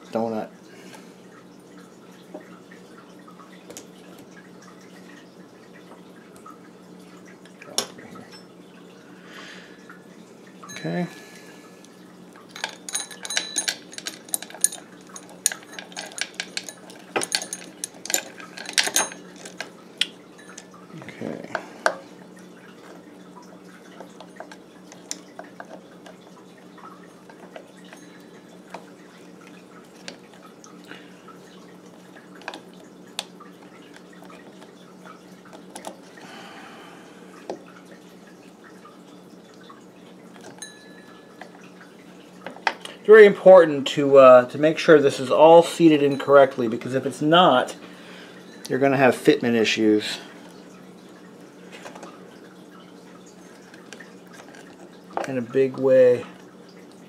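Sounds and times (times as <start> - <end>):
metal chain rattling and clinking: 12.5 - 19.7.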